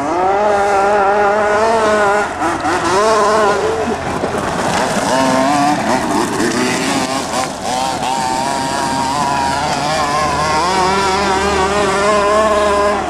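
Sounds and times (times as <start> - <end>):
small two-stroke engine revving: 0.0 - 13.0.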